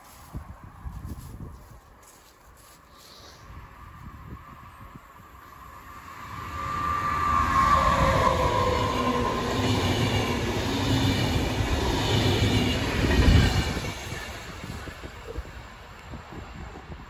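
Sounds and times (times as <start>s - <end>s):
electric locomotive high tone: 3.9s - 15.9s
train wheels rumbling on rails: 3.9s - 17.0s.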